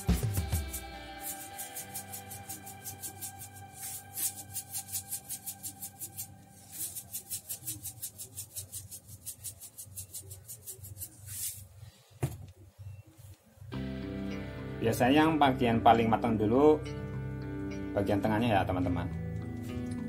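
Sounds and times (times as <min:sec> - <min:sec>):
sugar rattling in shaker: 0:00.0 - 0:11.7.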